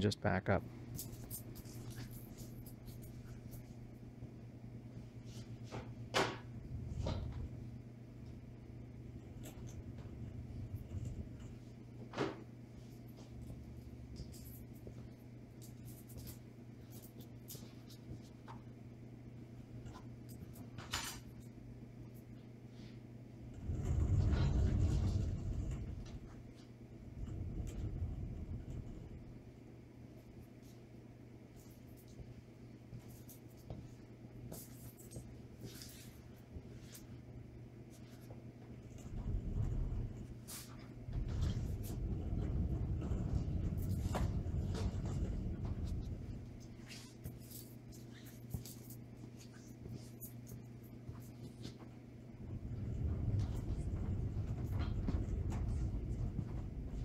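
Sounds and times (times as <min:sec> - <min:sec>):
low hum: 0:23.0 - 0:32.8, 0:36.5 - 0:48.9, 0:49.6 - 0:57.0
caster dollies rolling rumble: 0:23.5 - 0:29.5, 0:41.0 - 0:46.7, 0:52.3 - 0:57.0.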